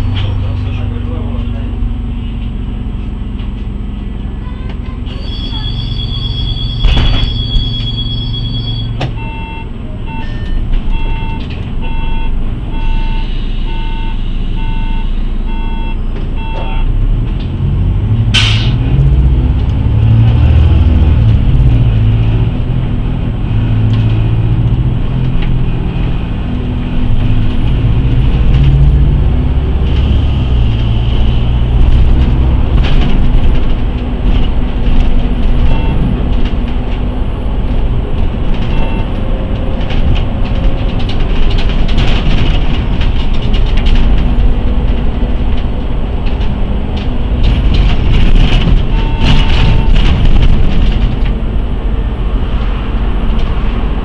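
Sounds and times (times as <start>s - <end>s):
bus diesel engine pulling: 0.0s - 54.0s
warning beeps: 5.4s - 16.9s.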